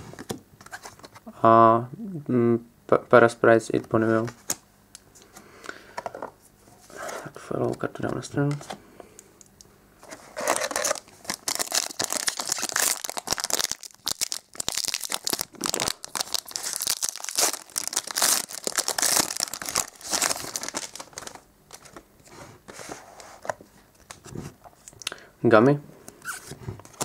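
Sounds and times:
foil wrapper crinkling and tearing: 10.4s - 22.0s.

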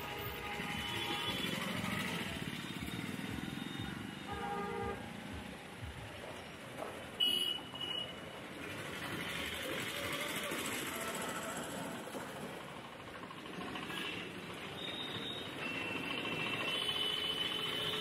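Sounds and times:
vehicle horns: 0.0s - 5.3s, 7.1s - 8.3s, 13.9s - 18.0s
busy street traffic: 0.0s - 18.0s.

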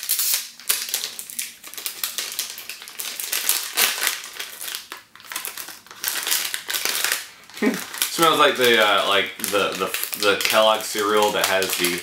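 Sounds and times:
candy wrapper crackling: 0.0s - 12.0s.

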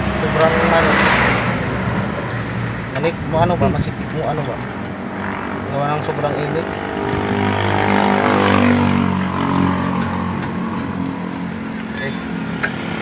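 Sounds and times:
high-pitched metallic clink: 11.9s - 12.5s.

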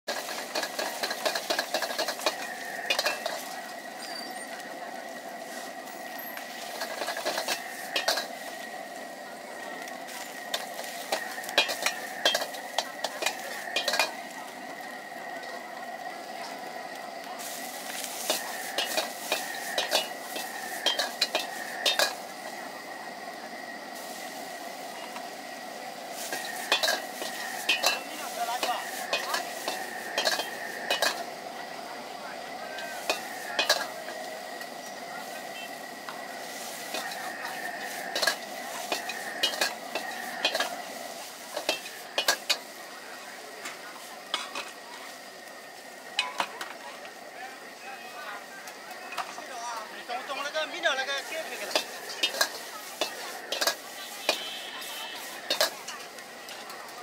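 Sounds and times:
utensils clattering against wok: 0.0s - 47.3s, 48.6s - 57.0s
food sizzling in a wok: 0.0s - 57.0s.

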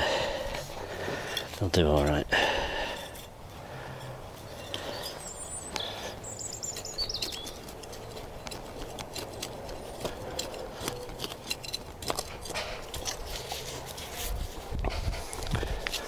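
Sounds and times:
hands rustling in soil: 0.0s - 16.0s
songbird singing: 1.7s - 13.6s.

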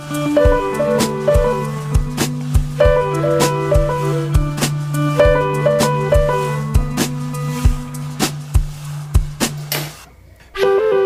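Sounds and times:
sustained pitched notes: 0.0s - 9.0s
drum beat: 0.0s - 10.0s.

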